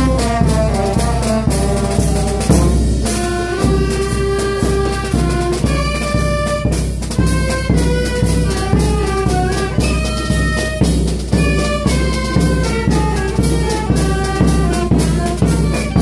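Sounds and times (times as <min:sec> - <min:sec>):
drum beat: 0:00.0 - 0:16.0
street band horns playing: 0:00.0 - 0:16.0.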